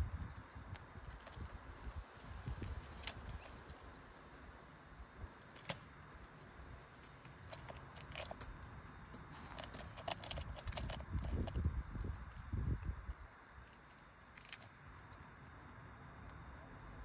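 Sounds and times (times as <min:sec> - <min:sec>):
bird tearing at carcass: 0:02.2 - 0:04.0, 0:05.2 - 0:08.6, 0:09.2 - 0:11.7.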